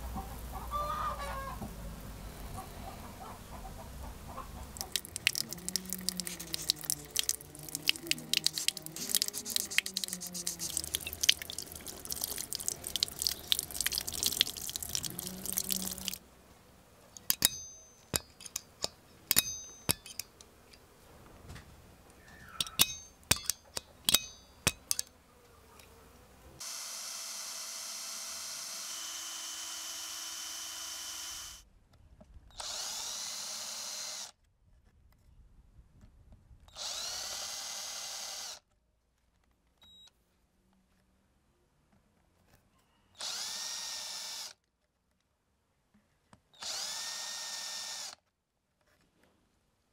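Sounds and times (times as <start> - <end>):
electric drill running: 4.8 - 11.8, 26.6 - 31.6, 32.6 - 34.4, 36.8 - 38.6, 43.2 - 44.6, 46.6 - 48.2
running tap water: 4.8 - 16.2
wet sanding metal: 4.8 - 16.2.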